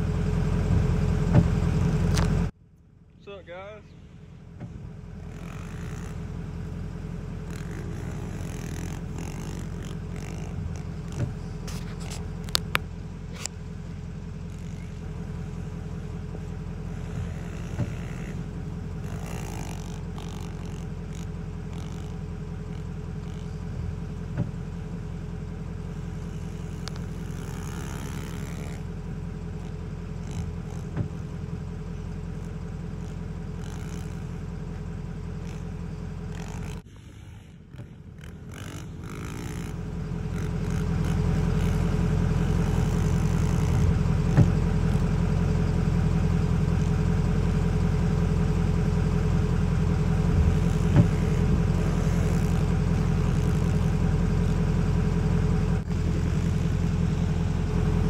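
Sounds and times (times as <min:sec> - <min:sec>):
pit bike engine droning: 0:00.0 - 0:58.0
sharp clicks: 0:07.4 - 0:13.6, 0:17.0 - 0:23.7, 0:26.1 - 0:28.9, 0:37.7 - 0:45.2.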